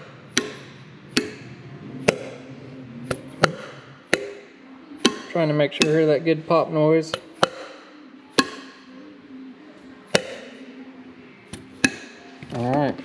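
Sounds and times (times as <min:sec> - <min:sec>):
hammer tapping valve stems: 0:00.0 - 0:02.5, 0:03.1 - 0:07.8, 0:08.4 - 0:08.8, 0:10.1 - 0:10.5, 0:11.5 - 0:12.2.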